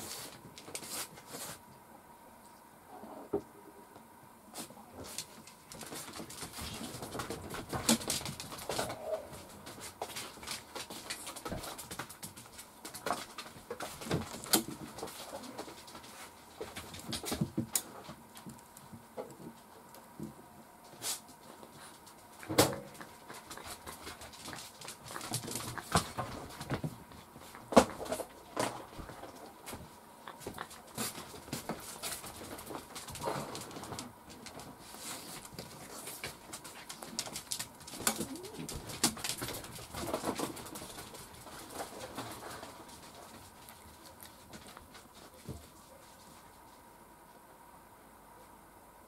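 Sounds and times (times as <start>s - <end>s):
soft low cooing calls: 8.6s - 9.6s, 38.1s - 38.8s.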